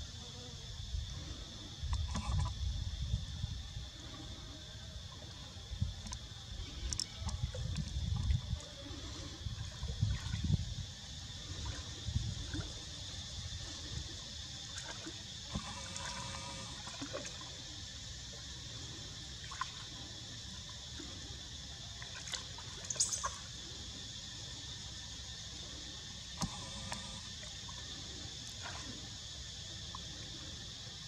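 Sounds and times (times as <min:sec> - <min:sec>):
high-pitched insect drone: 0:00.0 - 0:31.0
faint clicks: 0:06.8 - 0:08.0.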